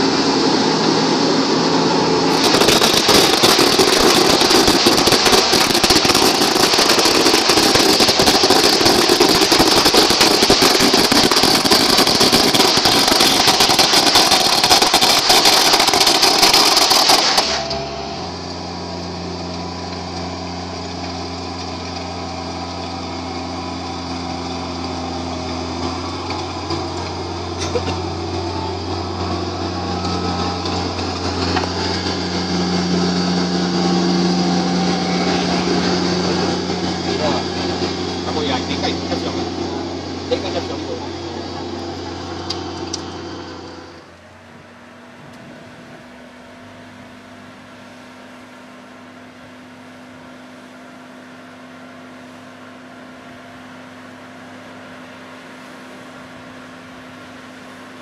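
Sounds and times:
loud harsh hiss: 0:00.0 - 0:19.0
tractor diesel engine running: 0:00.0 - 0:58.0.

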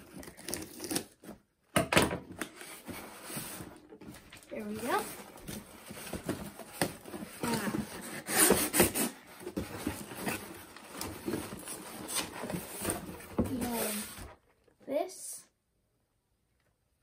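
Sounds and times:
cardboard box being torn open: 0:00.0 - 0:01.3
cardboard scraping and rustling: 0:02.5 - 0:14.4
hands rummaging in box: 0:02.6 - 0:14.3.

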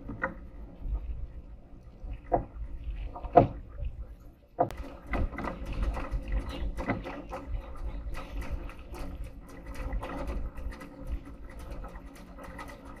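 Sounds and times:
small knocks and creaks: 0:00.0 - 0:01.1, 0:02.2 - 0:13.0
water rushing along hull: 0:00.0 - 0:13.0
wind buffeting microphone: 0:00.0 - 0:13.0.

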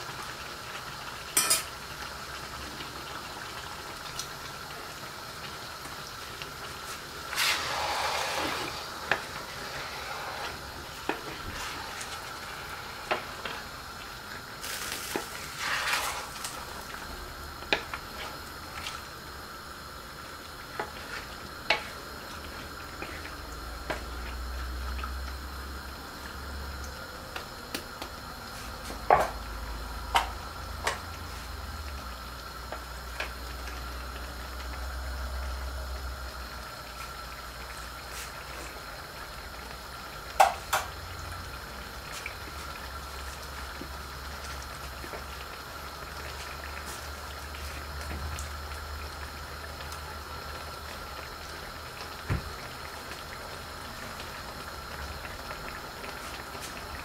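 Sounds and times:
meat sizzling and bubbling: 0:00.0 - 0:57.0
spatula stirring meat: 0:06.8 - 0:13.6.

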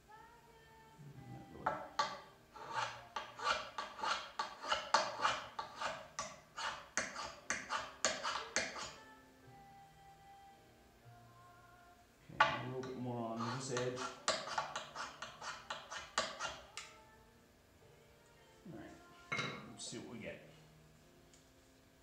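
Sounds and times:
steel-on-steel scraping strokes: 0:01.6 - 0:09.0, 0:12.8 - 0:16.9.

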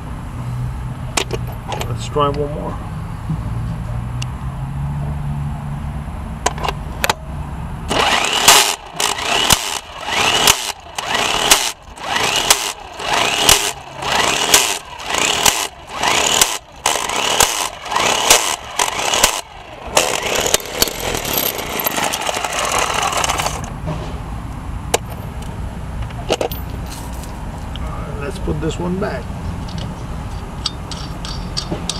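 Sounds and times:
impact wrench hammering: 0:07.9 - 0:23.7, 0:30.6 - 0:31.9.

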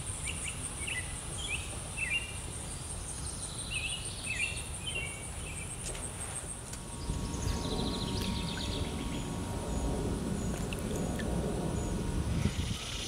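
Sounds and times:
songbirds chirping: 0:00.0 - 0:13.0
low rumbling noise: 0:06.6 - 0:13.0.

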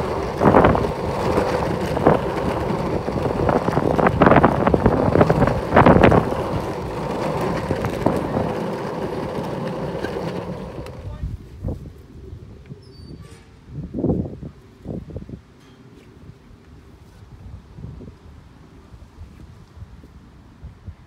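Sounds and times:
skateboard wheels rumbling on tarmac: 0:00.0 - 0:12.0
wind buffeting microphone: 0:00.0 - 0:15.5.

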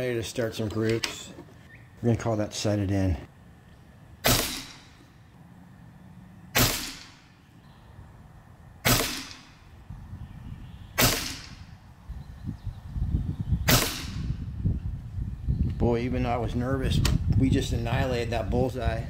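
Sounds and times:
air rifle shots: 0:04.2 - 0:05.1, 0:06.5 - 0:07.4, 0:08.8 - 0:09.6, 0:11.0 - 0:11.7, 0:13.6 - 0:14.4.

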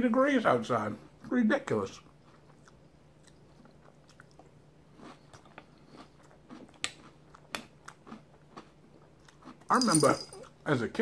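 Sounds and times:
man chewing cereal: 0:01.9 - 0:09.8.

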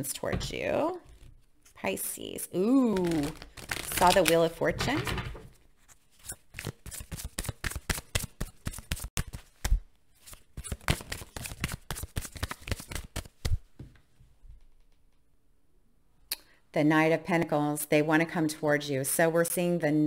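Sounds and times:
cards being shuffled: 0:02.7 - 0:04.6, 0:05.8 - 0:13.7.

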